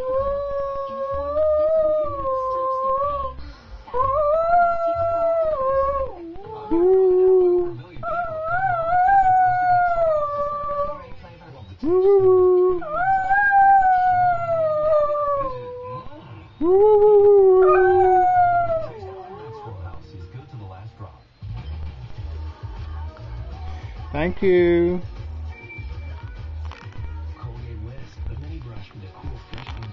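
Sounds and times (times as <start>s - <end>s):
dog howling: 4.0s - 11.0s, 11.8s - 20.0s.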